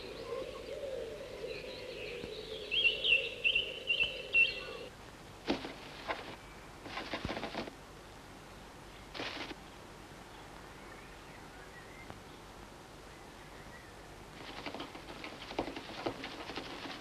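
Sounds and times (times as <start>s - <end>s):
chickadee chirping: 0.0s - 4.9s
rustling scratches: 5.5s - 7.8s, 9.2s - 9.6s, 14.4s - 17.0s.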